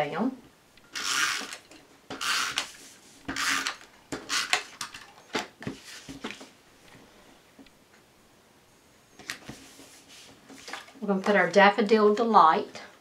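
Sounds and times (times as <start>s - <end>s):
rasping paper swipes: 2.3s - 3.7s.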